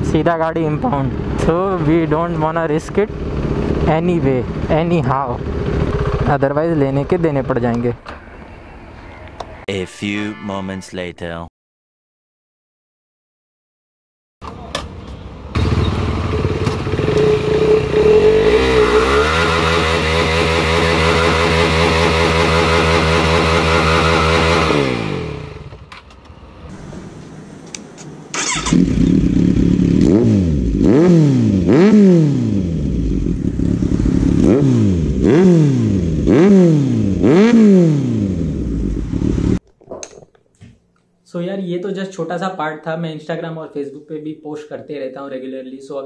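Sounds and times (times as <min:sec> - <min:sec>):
motorcycle engine at high revs: 0:00.0 - 0:06.5, 0:15.5 - 0:25.9, 0:28.3 - 0:39.6
motorcycle engine revving: 0:00.0 - 0:07.4, 0:15.4 - 0:27.6, 0:28.3 - 0:39.6.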